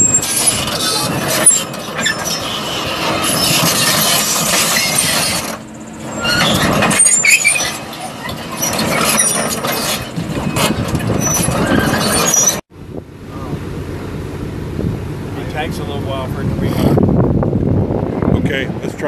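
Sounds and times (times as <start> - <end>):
track chains squealing and clanking: 0.0 - 12.6
diesel engine running: 0.0 - 19.0.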